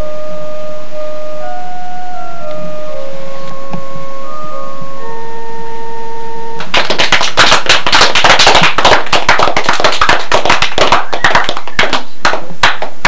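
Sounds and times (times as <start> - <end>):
electronic chime: 0.0 - 6.6
people clapping: 6.6 - 13.0.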